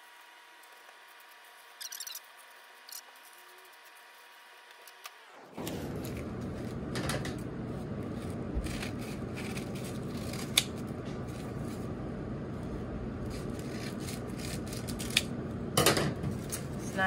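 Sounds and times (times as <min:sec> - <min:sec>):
low background hum: 0:00.0 - 0:17.0
scissors snipping paper: 0:08.2 - 0:11.6, 0:13.2 - 0:15.3.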